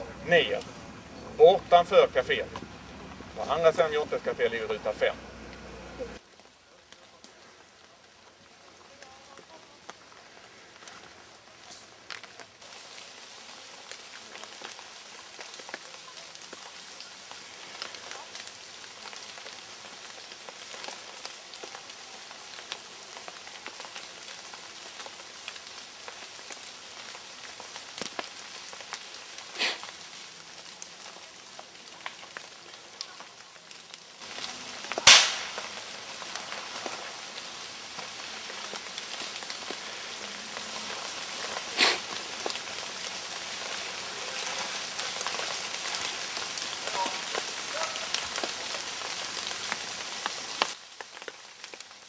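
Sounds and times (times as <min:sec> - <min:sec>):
steady light hiss: 0:00.0 - 0:47.5
gunshot bangs: 0:35.0 - 0:35.6.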